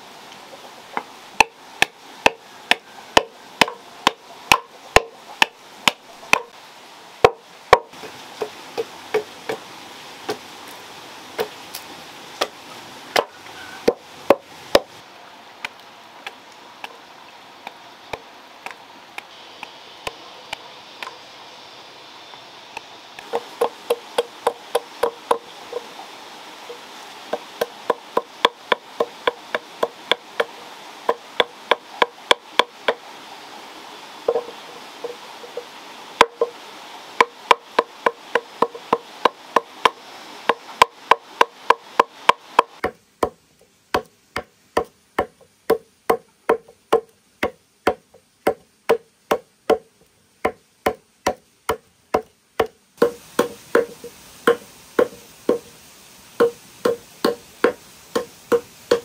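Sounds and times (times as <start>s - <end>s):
machete chopping wood: 1.4s - 6.5s, 37.2s - 55.7s, 56.4s - 59.0s.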